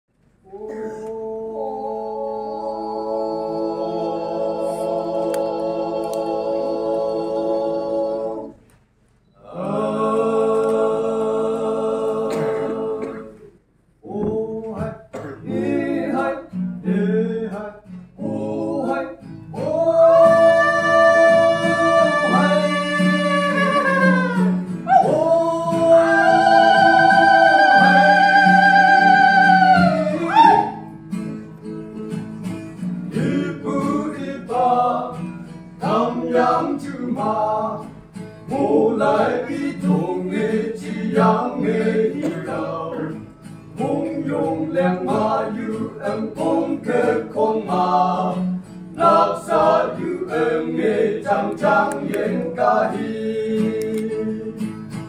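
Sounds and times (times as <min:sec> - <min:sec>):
male vocal group singing in harmony: 0:00.5 - 0:08.6, 0:09.4 - 0:30.7, 0:33.0 - 0:54.6
guitar accompaniment: 0:14.2 - 0:55.0.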